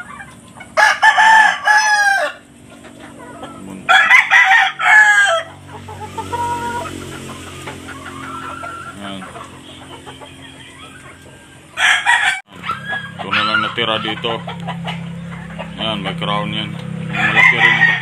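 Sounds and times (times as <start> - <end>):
rooster crowing: 0.7 - 2.5, 3.8 - 7.0, 7.6 - 14.0, 17.1 - 18.0.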